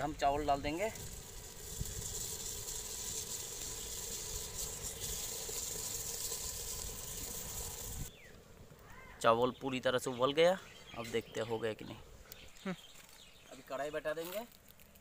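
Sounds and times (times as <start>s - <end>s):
rice pouring into water: 0.6s - 8.1s.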